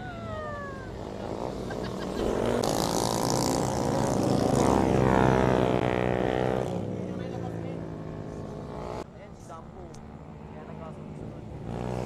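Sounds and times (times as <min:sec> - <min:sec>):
motorcycle revving past: 0:00.2 - 0:09.0, 0:10.0 - 0:12.0.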